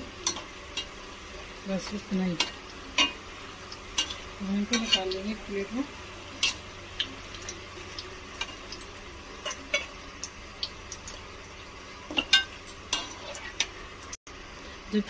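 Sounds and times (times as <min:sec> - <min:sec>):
hot oil sizzling: 0:00.0 - 0:15.0
spoon scraping a pan: 0:03.9 - 0:05.2, 0:09.4 - 0:10.0, 0:12.1 - 0:13.8.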